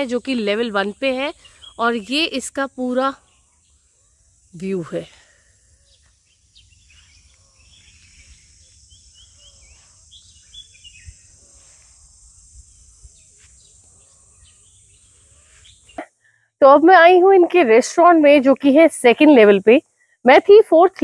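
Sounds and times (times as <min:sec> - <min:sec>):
faint birdsong: 0:00.0 - 0:16.5
insects buzzing: 0:00.0 - 0:21.0.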